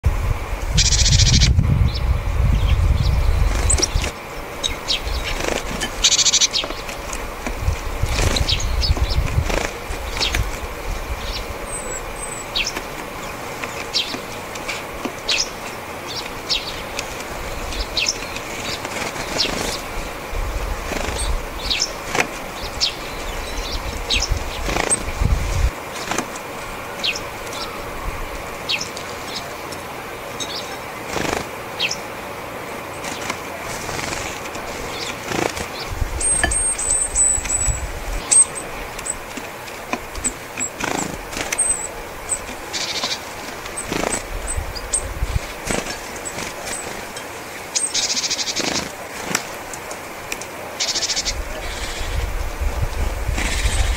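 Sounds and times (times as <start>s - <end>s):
short high bird calls: 0.8s - 1.5s, 36.2s - 39.2s
bird wings fluttering: 3.4s - 4.2s, 5.1s - 11.1s, 16.2s - 23.0s, 24.0s - 26.6s, 31.0s - 31.7s, 32.9s - 47.2s, 48.0s - 49.7s, 53.1s - 53.9s.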